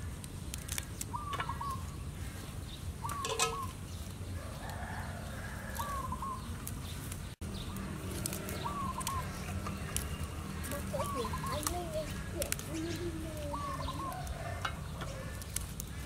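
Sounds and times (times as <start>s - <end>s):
chicken calling: 10.6s - 15.5s.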